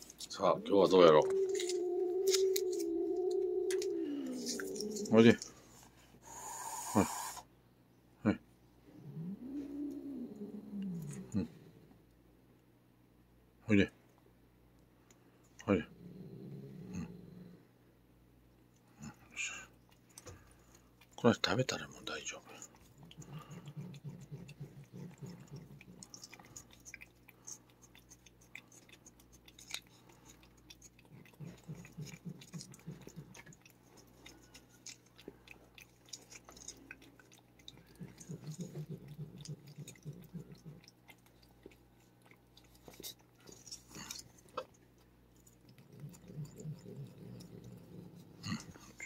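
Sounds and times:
cat licking and lapping: 18.8s - 49.0s.

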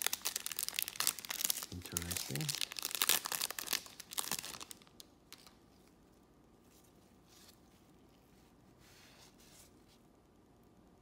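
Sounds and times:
wrapper crinkling and tearing: 0.0s - 5.6s.

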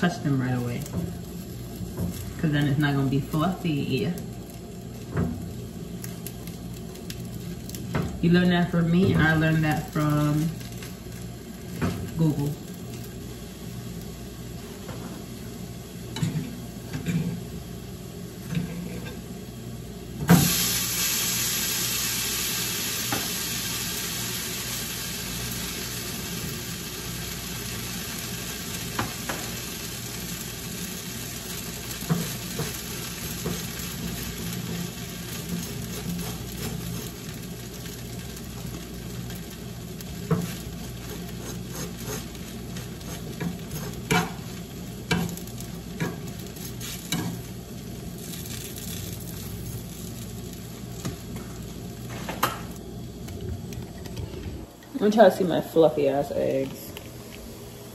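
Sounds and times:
food sizzling in a pan: 0.0s - 53.8s
spatula and fork scraping pans: 40.3s - 42.4s.

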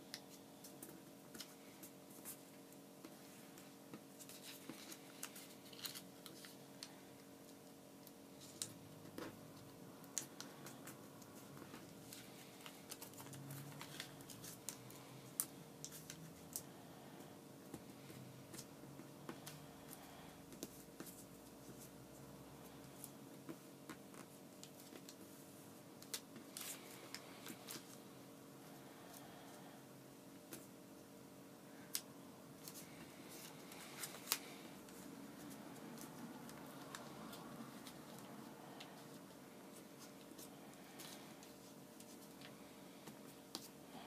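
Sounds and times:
steady low hum: 0.0s - 44.0s
paper folding crackles and rustles: 0.2s - 16.7s, 22.8s - 28.0s, 31.9s - 43.8s.

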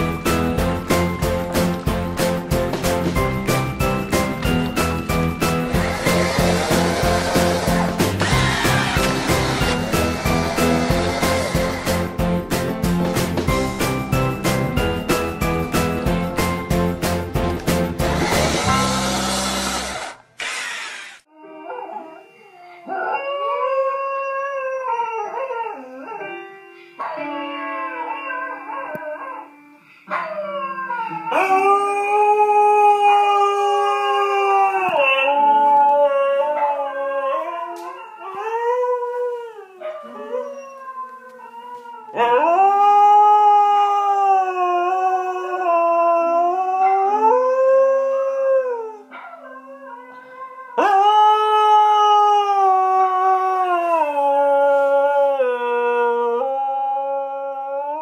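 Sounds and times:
husky howling: 5.7s - 12.1s, 27.0s - 58.0s.

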